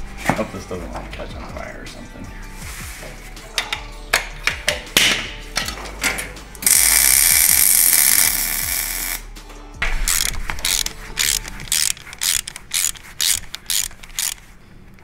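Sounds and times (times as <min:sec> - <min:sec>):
welder arc crackling: 0:06.6 - 0:09.2.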